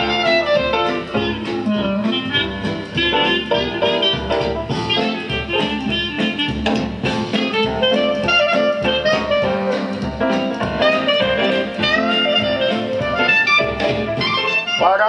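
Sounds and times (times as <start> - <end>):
band music over loudspeakers: 0.0 - 15.0.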